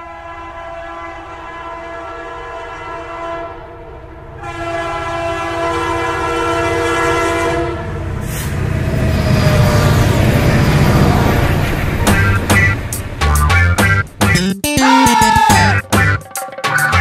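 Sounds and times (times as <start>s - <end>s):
train horn blasts: 0.0s - 3.7s, 4.4s - 8.1s.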